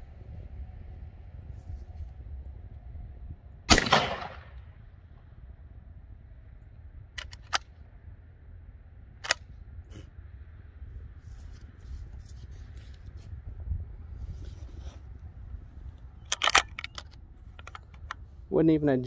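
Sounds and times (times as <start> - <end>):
shotgun shot with echo: 3.7 - 4.6
sharp metallic clicks: 7.2 - 7.7, 16.2 - 18.2.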